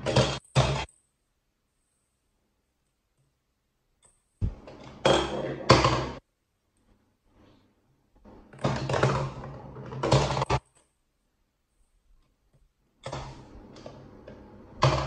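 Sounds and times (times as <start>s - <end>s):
ball rolling through plastic toy: 8.5s - 10.8s
plastic toy knocking and rolling: 8.6s - 10.8s, 13.1s - 15.0s.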